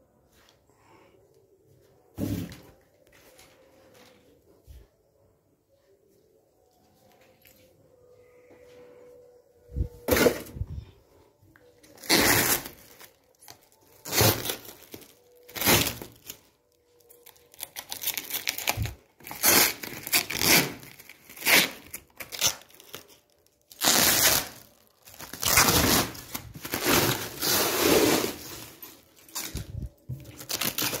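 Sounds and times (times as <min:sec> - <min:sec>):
plastic wrapping tearing: 0:11.8 - 0:31.0.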